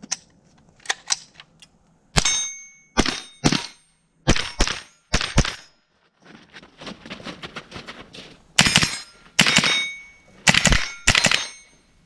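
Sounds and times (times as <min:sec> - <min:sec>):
steel target clanging: 0:02.1 - 0:05.7, 0:08.6 - 0:12.0
loud rifle shots: 0:08.6 - 0:11.6.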